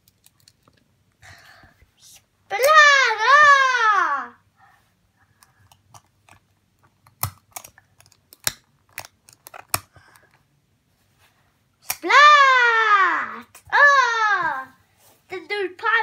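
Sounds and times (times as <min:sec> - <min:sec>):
plastic toy pieces clicking: 0:07.0 - 0:10.3.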